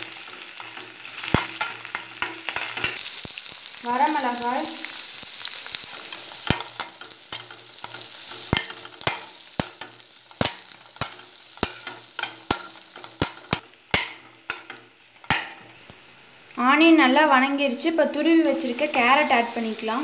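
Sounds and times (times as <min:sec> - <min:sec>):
vegetables sizzling in hot oil: 0:00.0 - 0:20.0
spatula scraping a pan: 0:05.7 - 0:15.8.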